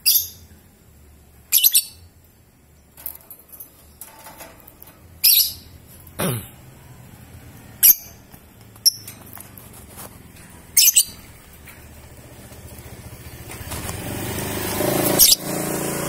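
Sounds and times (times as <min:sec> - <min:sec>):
lovebird shrill calls: 0:01.5 - 0:02.0, 0:05.2 - 0:05.7, 0:10.8 - 0:11.2
motorcycle engine approaching: 0:08.5 - 0:16.0.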